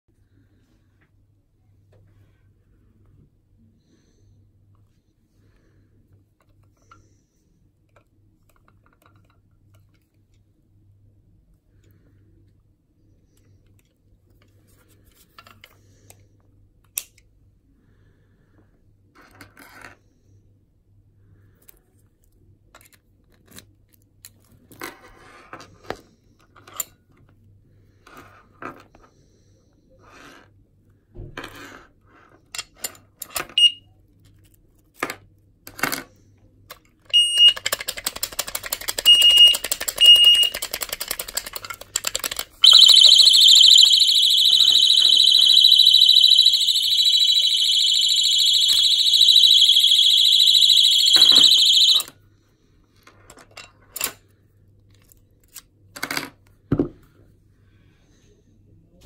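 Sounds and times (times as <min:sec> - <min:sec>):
high-pitched alarm siren: 0:39.1 - 0:40.6, 0:42.6 - 0:52.1
short high beeps: 0:39.1 - 0:40.6, 0:42.6 - 0:52.0.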